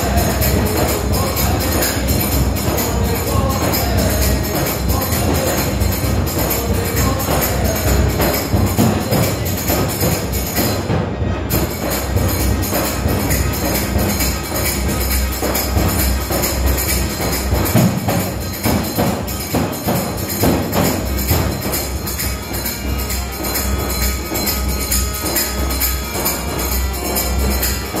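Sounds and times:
tambourine beaten by hand: 0:00.0 - 0:28.0.

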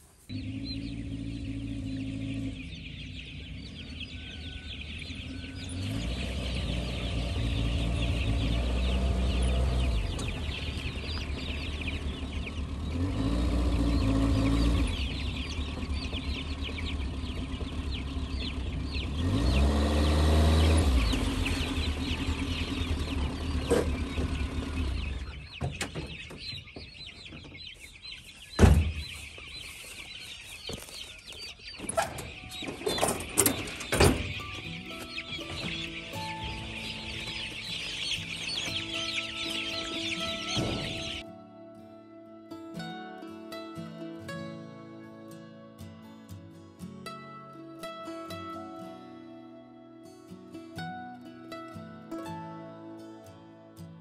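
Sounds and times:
chicks peeping: 0:00.0 - 0:41.5
truck engine revving: 0:00.3 - 0:25.6, 0:32.2 - 0:41.2.

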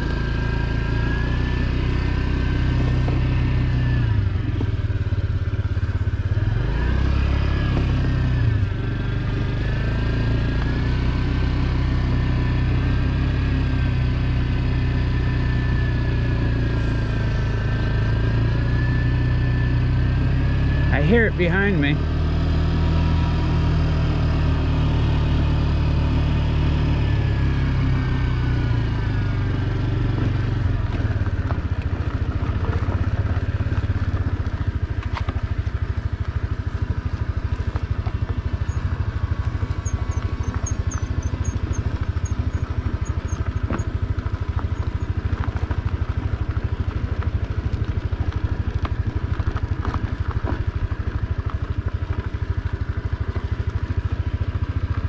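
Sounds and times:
moped engine running: 0:00.0 - 0:55.0.

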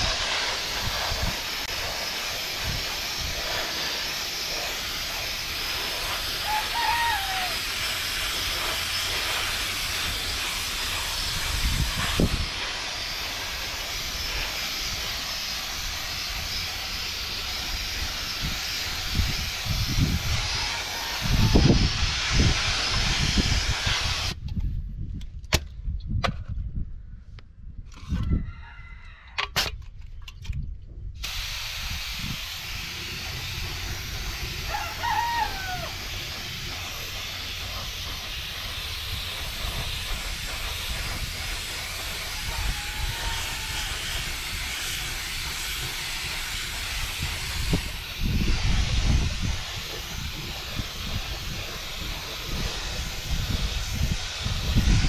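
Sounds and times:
paint spray gun hissing: 0:00.0 - 0:24.4, 0:31.2 - 0:55.0
rooster crowing: 0:06.4 - 0:07.7, 0:20.4 - 0:21.7, 0:28.2 - 0:29.4, 0:34.6 - 0:36.2, 0:42.2 - 0:44.2.

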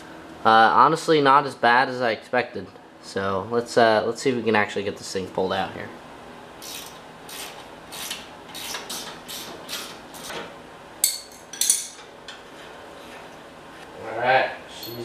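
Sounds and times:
sharp metallic clinks: 0:14.7 - 0:15.0.

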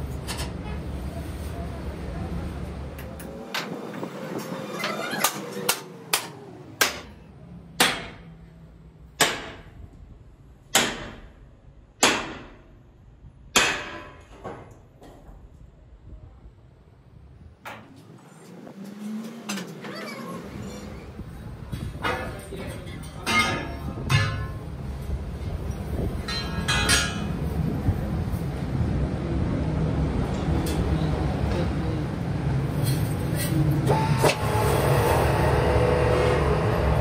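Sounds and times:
hammer striking steel: 0:05.2 - 0:07.2, 0:07.8 - 0:08.3, 0:09.2 - 0:09.8, 0:10.7 - 0:12.7, 0:13.5 - 0:14.6, 0:23.1 - 0:24.8, 0:26.2 - 0:27.4
metal disc clanking and ringing: 0:22.8 - 0:24.7, 0:26.2 - 0:27.4.

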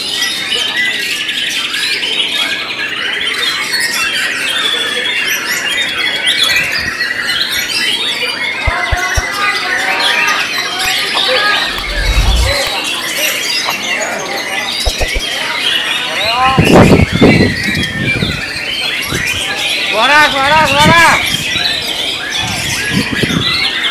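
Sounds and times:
many songbirds singing: 0:14.1 - 0:23.9.

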